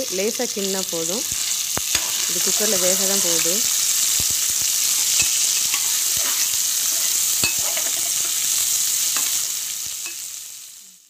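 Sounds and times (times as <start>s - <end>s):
onions sizzling in hot oil: 0.0s - 11.0s
metal spoon scraping a pot: 1.3s - 3.7s, 4.8s - 8.5s.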